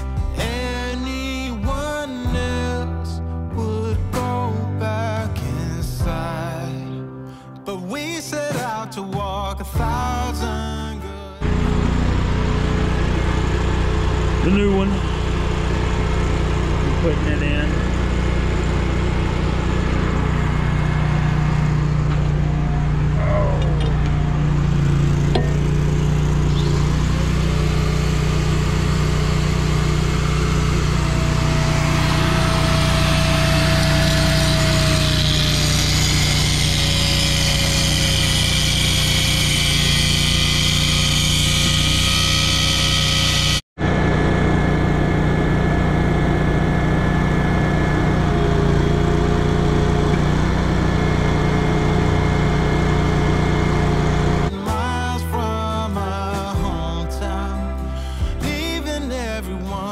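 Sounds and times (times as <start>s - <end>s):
angle grinder grinding steel: 11.4s - 54.7s
engine droning: 11.4s - 54.8s.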